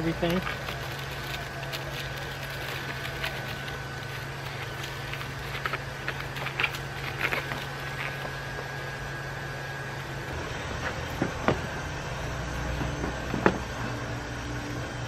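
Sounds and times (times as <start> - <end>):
mylar crinkling: 0.0 - 9.0
low hum: 0.0 - 15.0.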